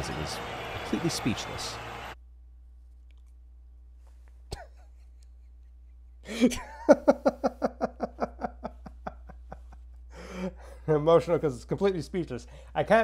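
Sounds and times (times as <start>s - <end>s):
man laughing heartily: 4.5s - 10.9s.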